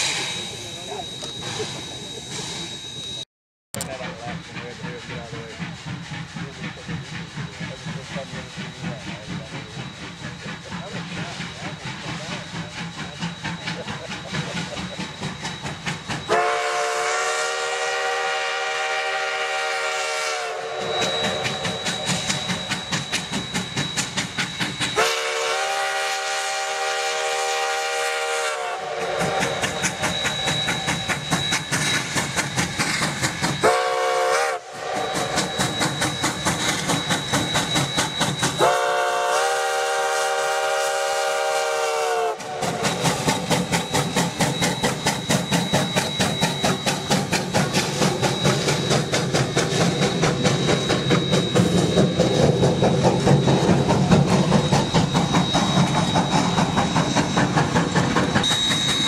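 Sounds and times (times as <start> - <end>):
steam locomotive whistle: 0.0 - 3.2, 3.8 - 59.0
steam exhaust chuffing: 3.8 - 59.0.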